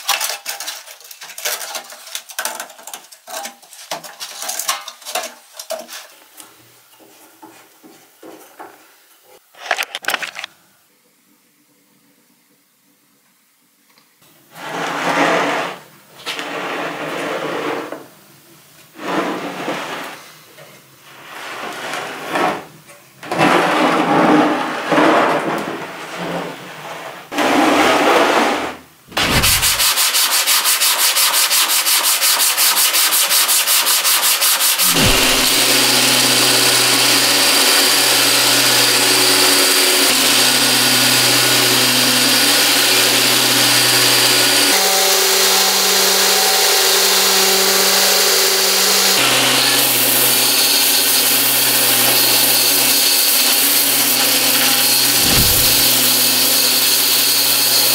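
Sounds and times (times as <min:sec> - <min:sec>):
power tool grinding: 0:29.1 - 0:29.9, 0:34.8 - 0:57.9
abrasive sanding strokes: 0:29.1 - 0:32.4, 0:52.1 - 0:56.2
low hum: 0:34.9 - 0:36.0, 0:55.0 - 0:56.2.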